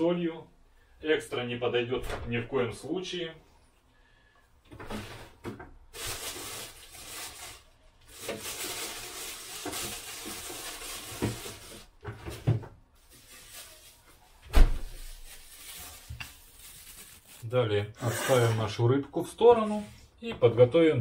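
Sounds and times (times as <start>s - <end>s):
rustling: 4.9s - 17.6s.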